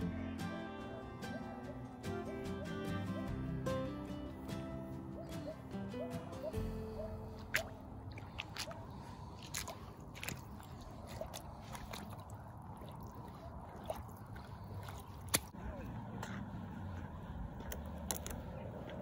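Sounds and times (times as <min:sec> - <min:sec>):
boots crunching on thin ice: 0:08.1 - 0:12.3.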